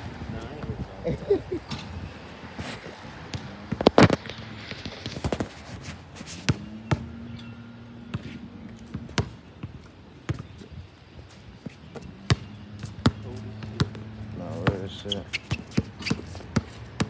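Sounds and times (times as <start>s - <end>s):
basketball bouncing on hard court: 3.2s - 5.5s, 6.5s - 10.7s, 11.6s - 17.0s.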